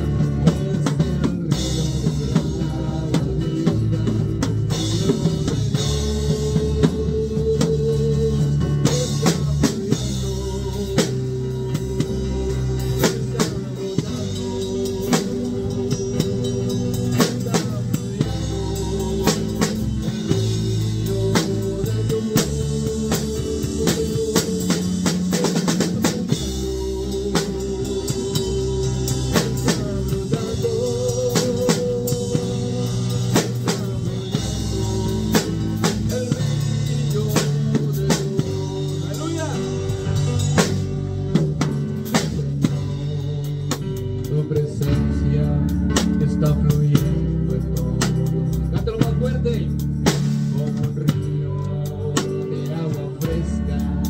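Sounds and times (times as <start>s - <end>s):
drum kit with cymbals: 0.0s - 54.0s
held bass notes and chords: 0.0s - 54.0s.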